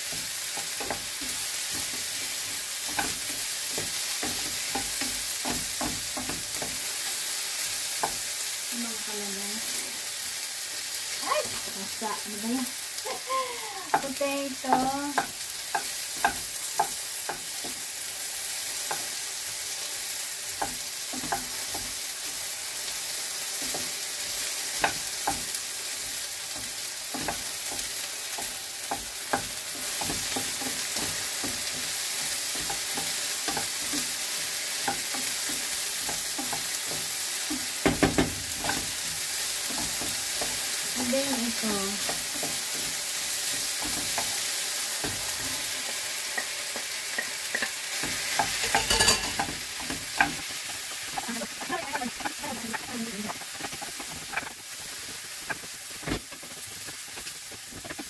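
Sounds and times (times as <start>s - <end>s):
potatoes sizzling in a pan: 0.0s - 58.0s
utensil scraping a pan: 47.6s - 58.0s.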